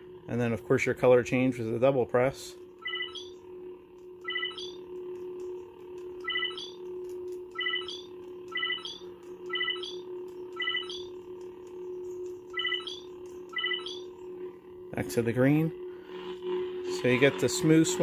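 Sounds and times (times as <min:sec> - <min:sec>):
lightsaber low hum: 0:00.0 - 0:18.0
short electronic beeps with chirp: 0:02.8 - 0:03.4, 0:04.2 - 0:04.9, 0:06.2 - 0:06.8, 0:07.5 - 0:11.1, 0:12.5 - 0:14.1.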